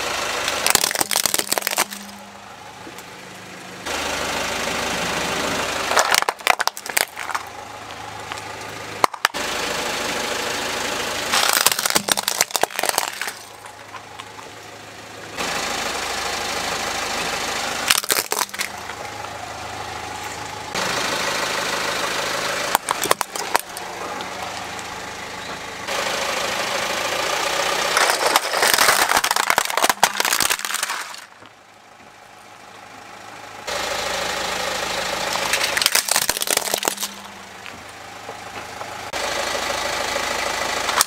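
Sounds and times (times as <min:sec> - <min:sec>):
car engine idling: 0:00.0 - 0:41.0
plastic cracking and crunching: 0:00.5 - 0:02.2, 0:05.9 - 0:07.5, 0:09.0 - 0:09.4, 0:11.3 - 0:14.4, 0:17.9 - 0:18.9, 0:22.7 - 0:23.8, 0:28.0 - 0:31.4, 0:35.4 - 0:37.3.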